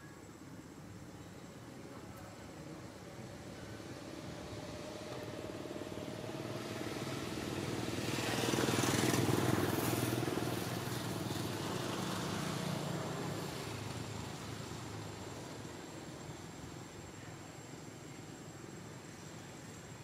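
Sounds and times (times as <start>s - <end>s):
vehicle engine passing by: 3.6s - 15.9s.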